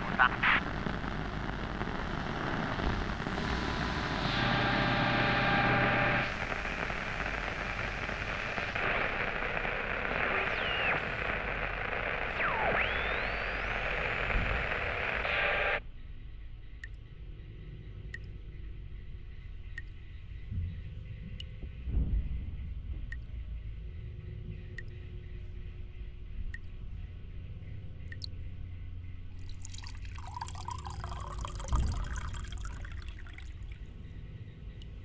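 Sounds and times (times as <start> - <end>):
radio static hiss: 0.0 - 15.8
whining tones and whistles: 2.9 - 16.6.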